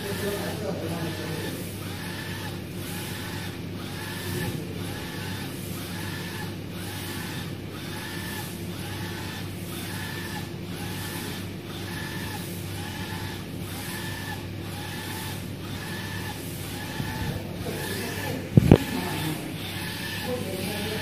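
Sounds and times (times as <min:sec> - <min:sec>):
low machine hum: 0:00.0 - 0:21.0
printer carriage whine: 0:00.0 - 0:21.0.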